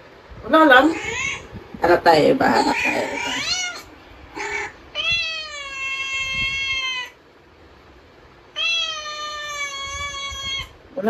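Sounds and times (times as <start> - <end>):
cat short cry: 0.9 - 1.4, 2.7 - 7.2, 8.6 - 10.8
cat meowing: 0.9 - 1.5, 2.5 - 7.2, 8.5 - 10.8.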